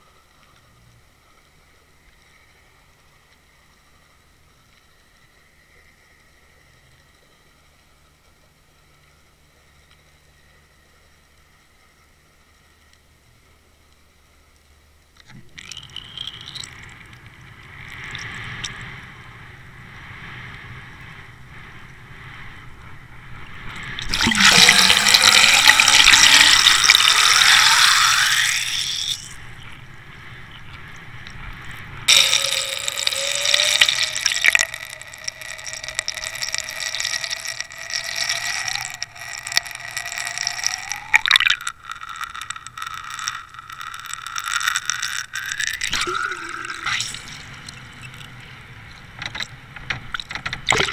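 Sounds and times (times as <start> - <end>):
steady whine: 0.0 - 50.9
water rushing and splashing: 23.5 - 50.9.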